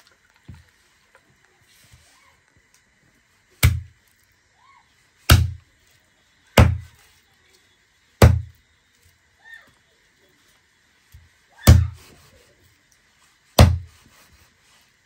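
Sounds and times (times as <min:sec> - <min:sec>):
cleaver chopping on wooden block: 0:03.6 - 0:03.9, 0:05.3 - 0:05.6, 0:06.6 - 0:06.9, 0:08.2 - 0:08.5, 0:11.6 - 0:12.0, 0:13.6 - 0:13.9.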